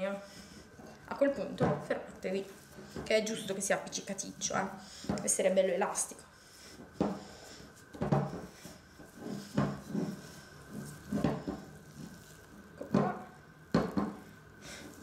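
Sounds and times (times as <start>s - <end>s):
hands kneading sticky dough: 0.0s - 15.0s
dough bumping against glass bowl: 9.2s - 14.3s.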